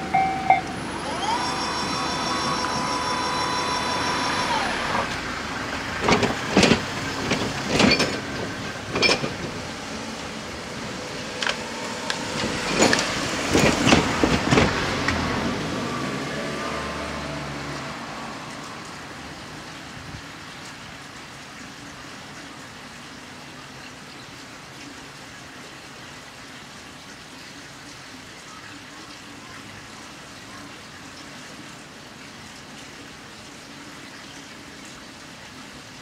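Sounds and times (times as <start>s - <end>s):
train rumble: 0.0s - 15.9s.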